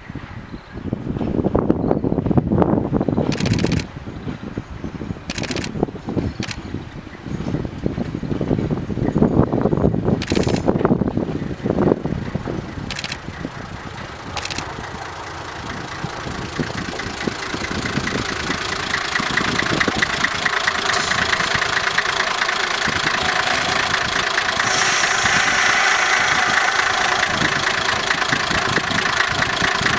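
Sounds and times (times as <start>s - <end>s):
diesel engine clattering: 0.1s - 29.9s
high hiss: 23.2s - 29.0s.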